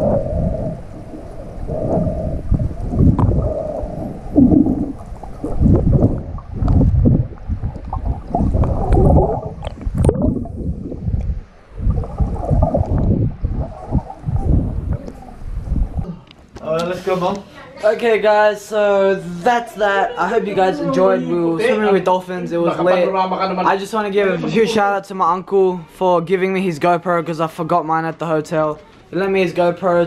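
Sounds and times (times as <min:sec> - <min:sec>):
water sloshing underwater: 0:00.0 - 0:16.5.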